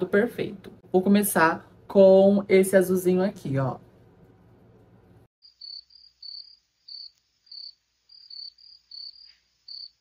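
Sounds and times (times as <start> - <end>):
crickets chirping: 5.4 - 10.0.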